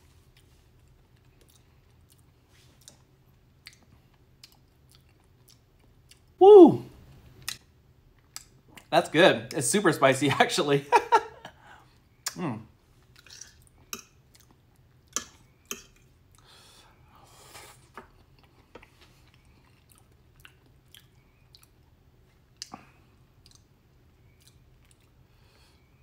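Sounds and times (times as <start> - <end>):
person chewing and smacking food: 0.3 - 6.4, 7.4 - 8.9, 13.0 - 16.5, 17.9 - 25.2.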